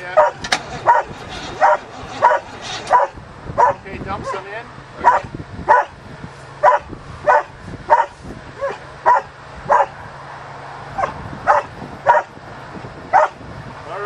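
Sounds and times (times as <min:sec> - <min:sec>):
dog barking: 0:00.2 - 0:04.4, 0:05.0 - 0:05.9, 0:06.6 - 0:10.0, 0:11.0 - 0:12.3, 0:13.1 - 0:13.4.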